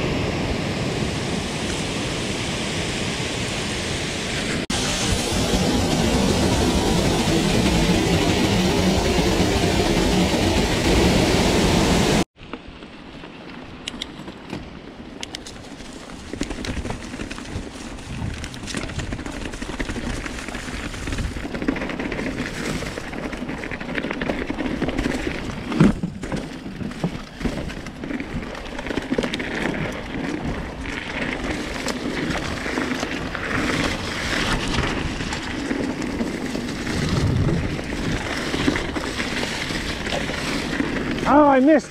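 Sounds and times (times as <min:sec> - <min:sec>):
bike tyres on dirt trail: 0:00.0 - 0:41.9.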